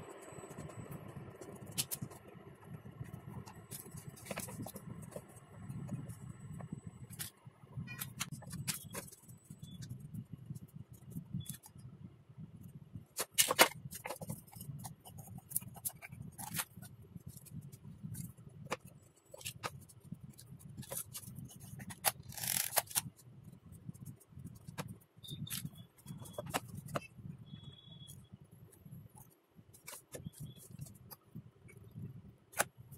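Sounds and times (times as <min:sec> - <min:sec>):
parts knocking and clicking: 0:13.2 - 0:23.2, 0:24.5 - 0:27.1.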